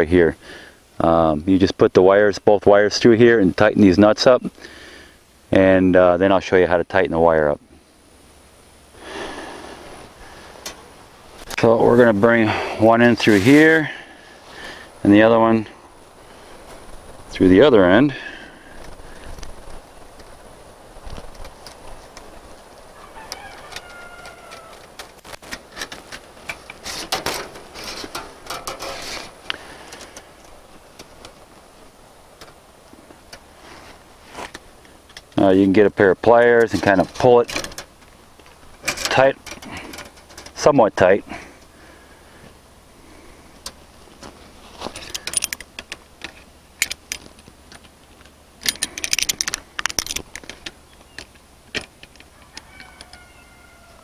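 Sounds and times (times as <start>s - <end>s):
steel wire scraping metal clip: 23.3s - 30.2s
wire and pliers clinking: 25.4s - 31.4s, 44.9s - 47.9s, 48.6s - 53.2s.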